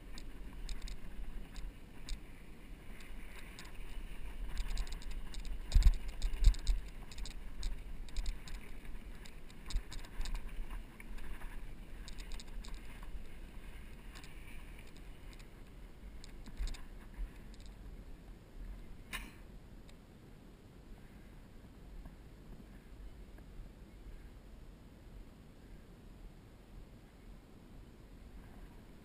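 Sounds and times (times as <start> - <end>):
bicycle rattling and clicking: 0.0 - 2.2, 2.9 - 15.6, 16.2 - 17.8.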